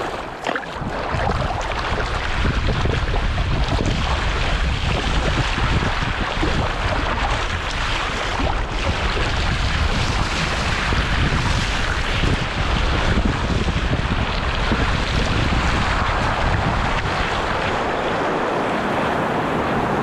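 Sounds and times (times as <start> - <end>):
ocean surf: 0.0 - 3.4, 15.3 - 20.0
wind buffeting microphone: 0.0 - 20.0.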